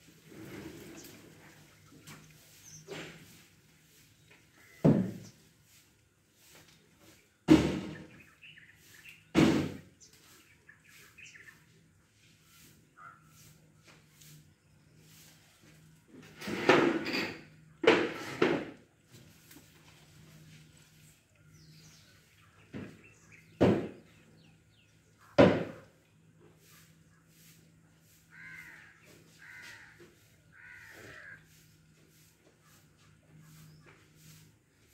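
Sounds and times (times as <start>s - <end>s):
rustle of leaves: 0.0s - 17.2s, 18.7s - 34.9s
birds chirping faintly: 0.2s - 16.4s, 18.8s - 34.9s
crows cawing: 28.3s - 31.7s.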